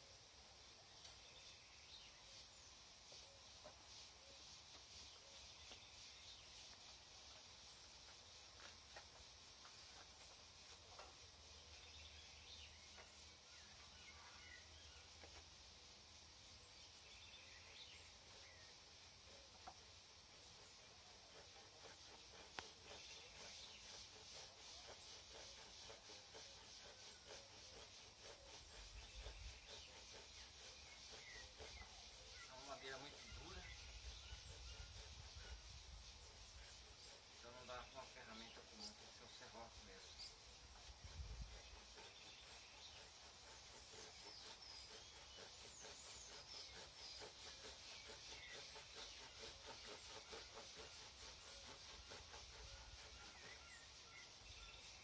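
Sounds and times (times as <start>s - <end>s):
birds chirping: 0.7s - 55.0s
hand saw rasping through wood: 17.0s - 55.0s.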